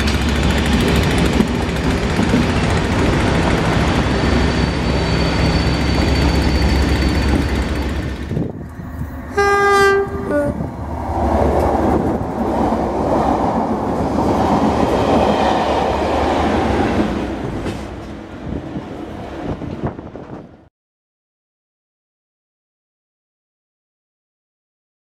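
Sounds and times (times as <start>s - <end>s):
diesel locomotive engine drone: 0.0s - 20.7s
train coaches rumbling over rails: 0.0s - 20.7s
train horn blast: 9.3s - 10.7s.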